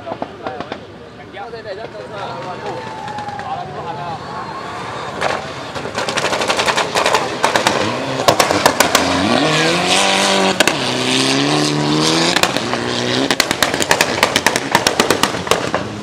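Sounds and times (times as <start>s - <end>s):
exhaust pops and bangs: 0.0s - 1.0s, 5.2s - 9.4s, 10.4s - 10.9s, 12.3s - 16.0s
car engine accelerating hard: 5.9s - 16.0s.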